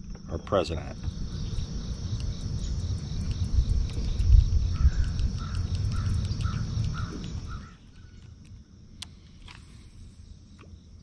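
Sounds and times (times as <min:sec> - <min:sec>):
crickets chirring: 0:00.0 - 0:11.0
bird calling: 0:00.3 - 0:08.4.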